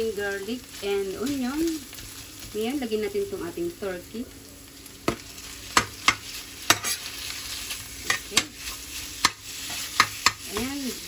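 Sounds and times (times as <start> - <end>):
meat sizzling in a frying pan: 0.0 - 11.0
utensil knocking on bowl and pan: 9.2 - 10.7.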